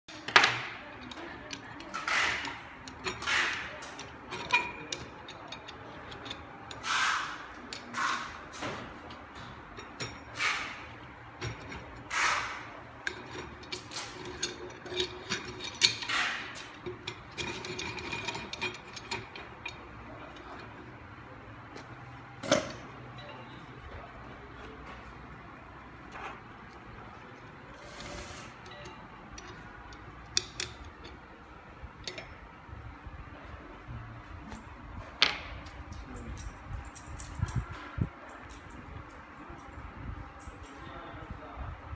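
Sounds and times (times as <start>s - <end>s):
metal clicks and scrapes: 0.1s - 23.7s, 26.0s - 32.5s.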